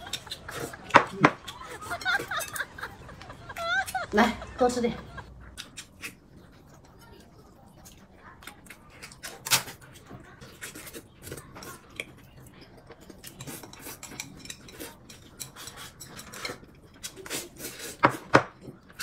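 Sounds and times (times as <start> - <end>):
utensils clicking and scraping: 13.0 - 18.2.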